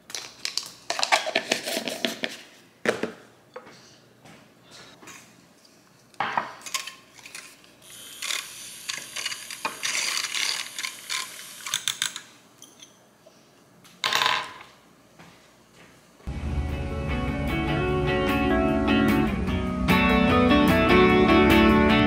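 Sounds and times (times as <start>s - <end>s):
guitar music: 16.3s - 22.0s.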